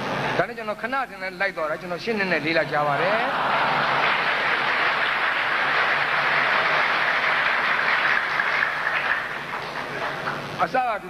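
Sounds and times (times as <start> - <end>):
audience applause: 3.0 - 10.7.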